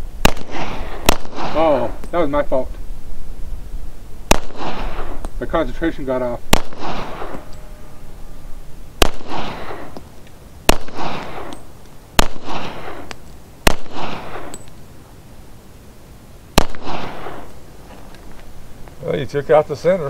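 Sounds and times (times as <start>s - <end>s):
pistol shots with echo: 0.2s - 2.2s, 4.3s - 5.7s, 6.5s - 7.6s, 9.0s - 10.0s, 10.6s - 14.7s, 16.6s - 17.5s.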